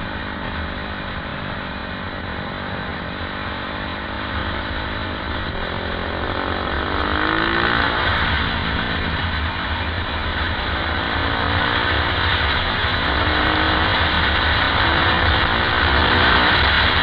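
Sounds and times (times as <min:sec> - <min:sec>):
motorcycle engine pulling steadily: 0:00.0 - 0:17.0.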